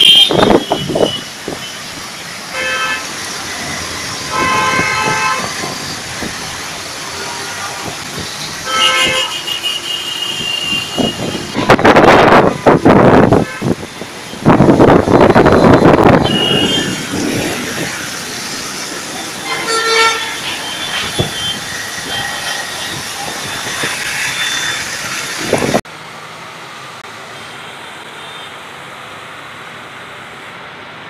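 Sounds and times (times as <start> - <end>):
vehicle horn: 0.0 - 1.7, 2.5 - 3.1, 4.3 - 5.6, 8.6 - 13.8, 15.6 - 17.2, 19.4 - 21.6
vehicles passing on wet road: 0.0 - 31.0
tyres hissing through water: 0.7 - 11.6, 16.3 - 30.7.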